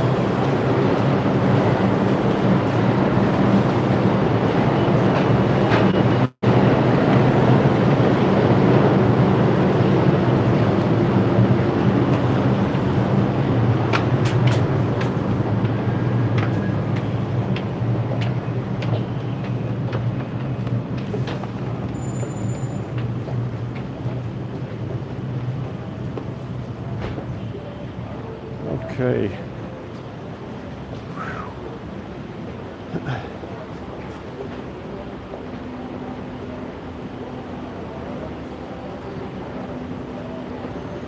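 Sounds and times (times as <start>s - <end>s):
subway train rumble: 0.0s - 41.0s
footsteps on stairs: 13.8s - 22.0s.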